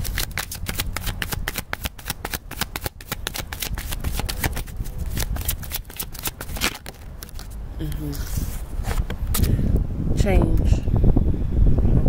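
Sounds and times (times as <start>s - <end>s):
cards being shuffled: 0.0s - 9.5s.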